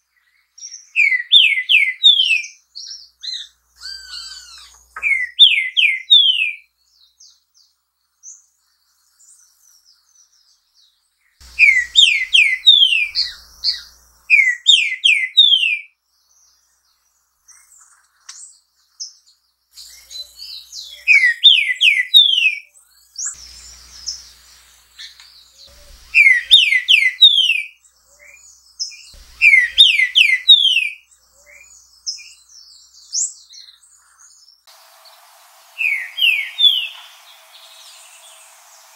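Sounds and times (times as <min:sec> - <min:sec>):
bird whistling song: 0:00.6 - 0:06.7, 0:11.5 - 0:15.9, 0:19.8 - 0:34.2, 0:35.0 - 0:38.9.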